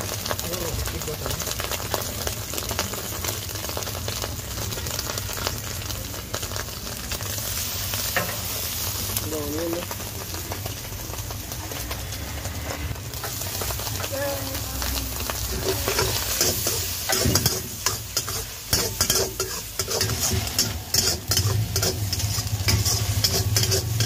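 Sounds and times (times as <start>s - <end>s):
food sizzling in a wok: 0.0s - 24.0s
spatula scraping wok: 11.2s - 24.0s.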